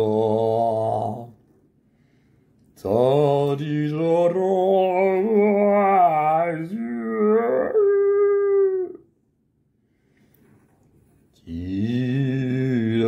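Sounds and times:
man singing wordless notes: 0.0 - 1.4, 2.8 - 9.0, 11.4 - 13.0.

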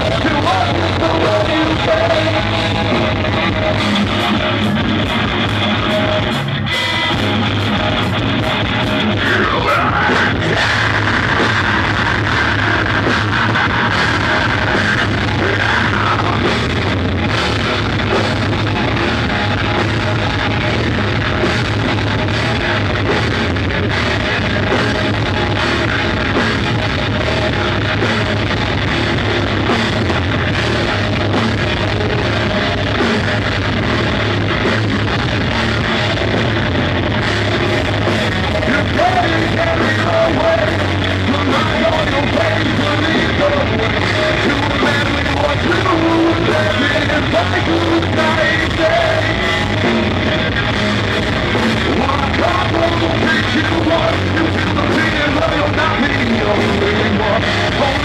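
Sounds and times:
person singing: 0.0 - 6.5, 8.8 - 17.1, 37.2 - 50.8, 51.4 - 58.0
drum kit: 0.0 - 58.0
electric guitars: 0.0 - 58.0.

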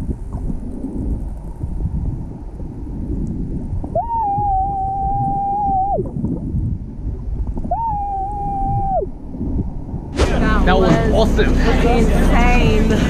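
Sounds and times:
person squealing underwater: 3.9 - 6.1, 7.7 - 9.1.

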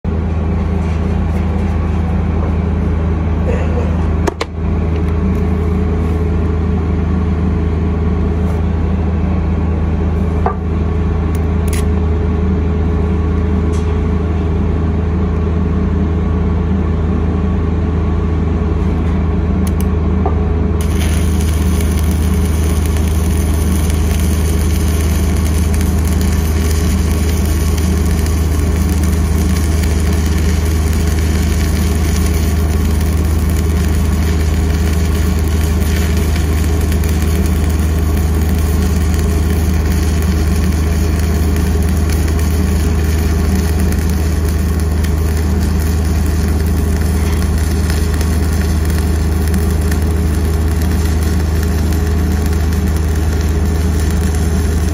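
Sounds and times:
welding machine engine drone: 0.0 - 54.9
welding arc crackling and hissing: 20.8 - 54.9.

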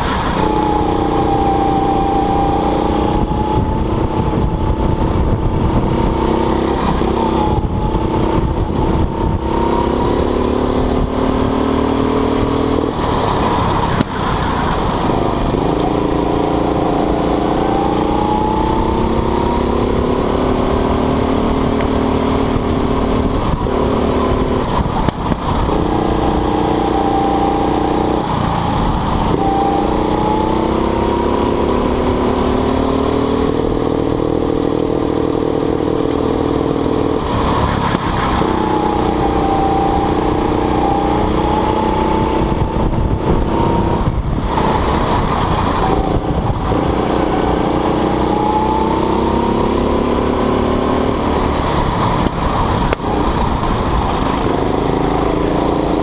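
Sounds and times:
go-kart engine racing: 0.0 - 56.0.

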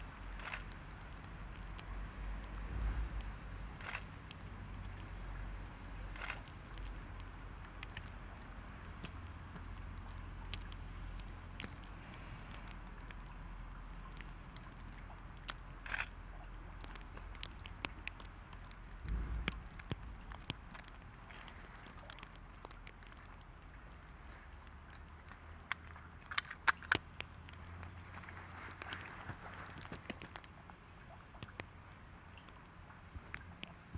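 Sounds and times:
steady low hum: 0.0 - 21.9
wet snow ticking and crackling: 0.0 - 33.9
low thump: 19.0 - 20.3.

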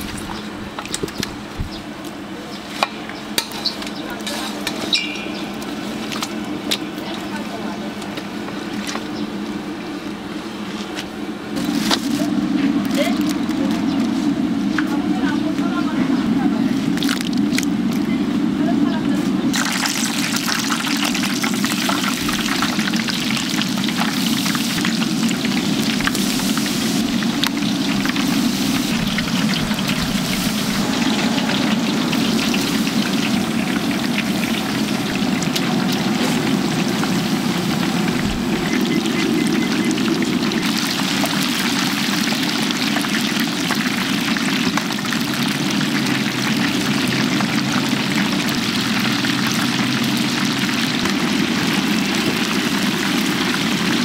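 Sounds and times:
chicken deep-frying in oil: 0.0 - 54.0
low rumble: 24.9 - 41.1.

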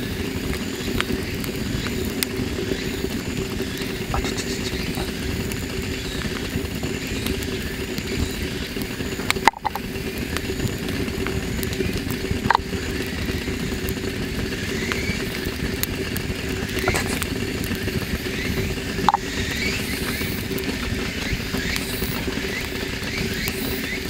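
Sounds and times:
campfire burning: 0.0 - 24.0
fire crackle: 0.0 - 24.0.

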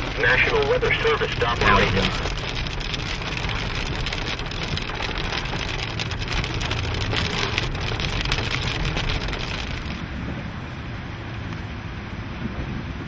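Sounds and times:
hail and rain on car roof: 0.0 - 10.0
steady low rumble: 0.0 - 13.0.

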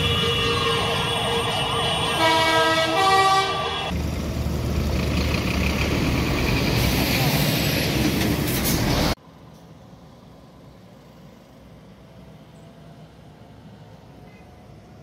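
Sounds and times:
vehicle horns sustained chord: 0.0 - 3.9
tractor engines rumbling: 0.0 - 15.0.

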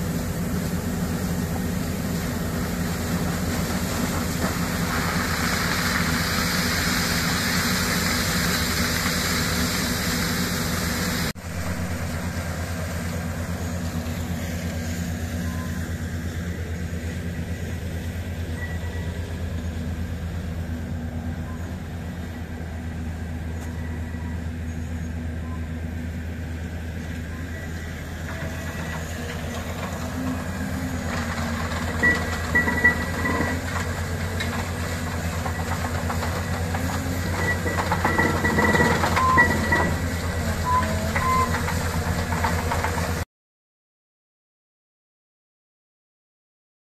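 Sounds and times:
hiss of muddy water spraying: 0.0 - 15.4, 27.9 - 43.2
drilling rig engine hum: 0.0 - 43.2.

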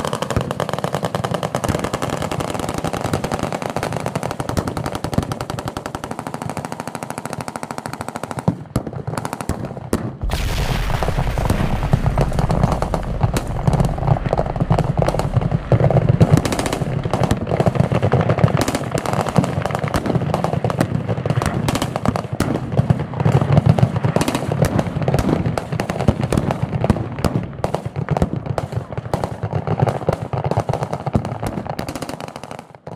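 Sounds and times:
low rumble: 10.2 - 18.4
explosion boom: 10.2 - 18.8
machine guns firing: 10.2 - 21.0.

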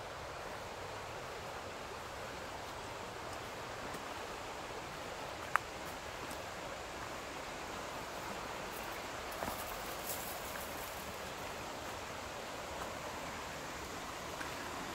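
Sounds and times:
river water rushing: 0.0 - 14.9.

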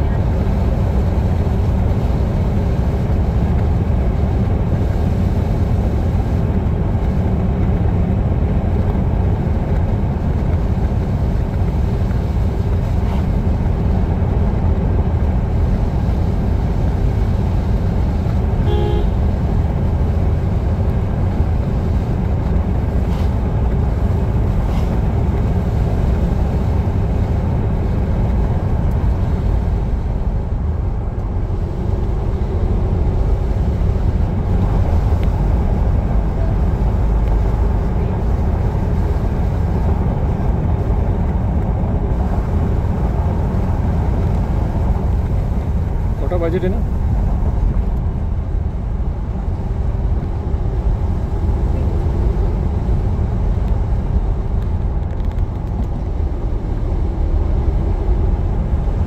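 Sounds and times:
car engine and road rumble: 0.0 - 59.0
short beep: 18.6 - 19.2.

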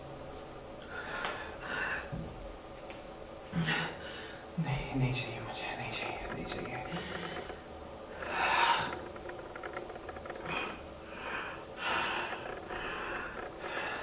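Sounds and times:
man breathing heavily: 0.8 - 2.2, 3.5 - 4.5, 6.9 - 9.1, 10.4 - 14.0.

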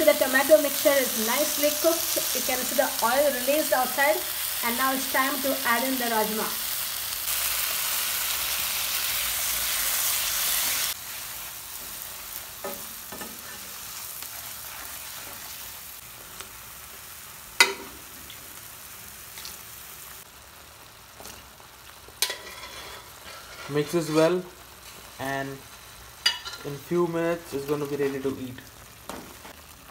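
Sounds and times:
food sizzling in hot oil: 0.0 - 29.9
spatula scraping and knocking pan: 22.2 - 24.2.

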